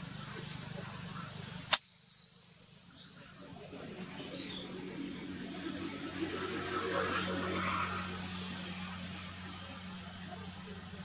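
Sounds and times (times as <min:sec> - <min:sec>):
sharp click: 0:01.7 - 0:01.9.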